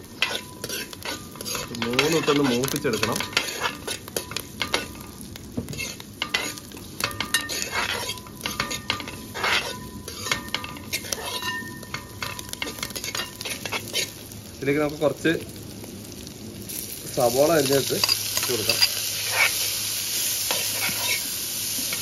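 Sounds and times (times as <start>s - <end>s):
food sizzling in hot oil: 0.0s - 22.0s
ladle scraping metal pan: 0.2s - 4.0s.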